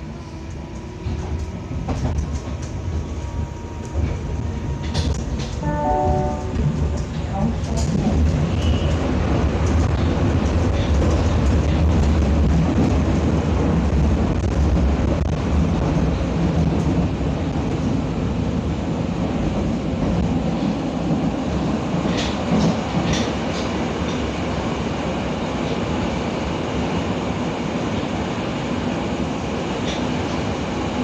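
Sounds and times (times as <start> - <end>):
train wheels rumbling on rails: 0.0 - 31.0.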